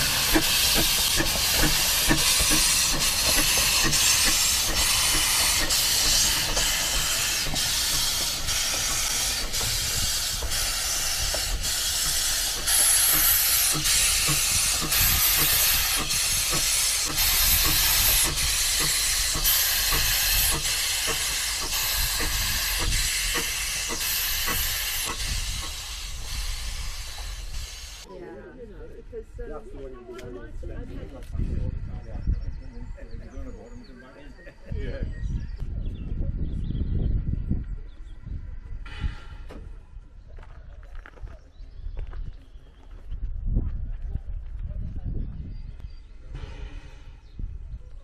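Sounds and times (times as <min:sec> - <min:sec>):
hiss of steam: 0:00.0 - 0:28.1, 0:46.2 - 0:47.7
steam locomotive exhaust beats: 0:00.0 - 0:28.1, 0:36.4 - 0:43.2, 0:44.4 - 0:48.0.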